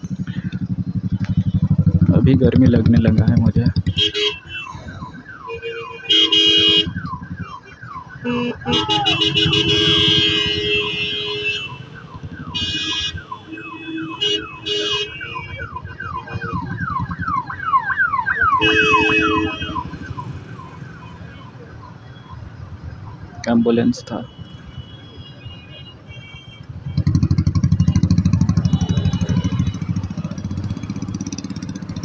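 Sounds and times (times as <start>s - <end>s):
ambulance siren wailing: 2.0s - 24.3s, 26.9s - 32.0s
vehicle horns honking: 3.8s - 4.8s, 5.4s - 16.8s, 18.5s - 20.1s, 23.9s - 30.9s.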